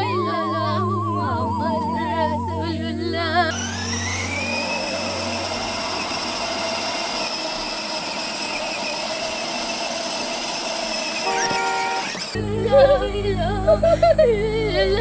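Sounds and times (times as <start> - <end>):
vehicle motor starting with whine: 3.2 - 15.0.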